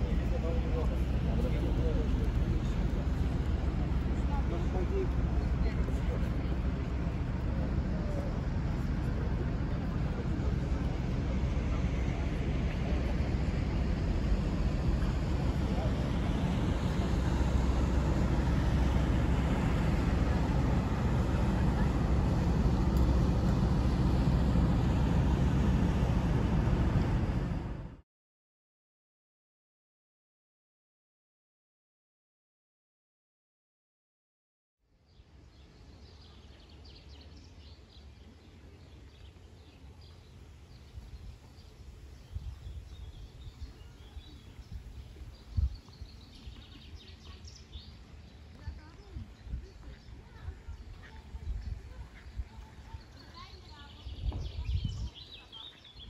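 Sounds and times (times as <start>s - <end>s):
moving vehicle rumble: 0.0s - 28.0s
small birds chirping: 35.1s - 56.0s.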